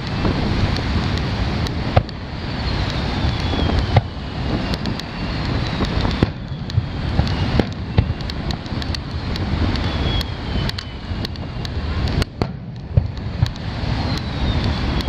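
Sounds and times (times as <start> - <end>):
firework cracks: 0.0 - 15.0
firework shells booming: 0.0 - 15.0
low background rumble: 0.0 - 15.0
faint falling whistle: 2.5 - 8.2, 9.8 - 11.7, 14.0 - 15.0.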